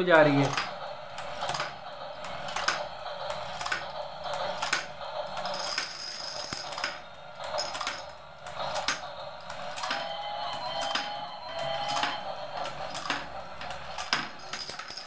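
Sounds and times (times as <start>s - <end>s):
toy electronic music: 9.8s - 13.6s.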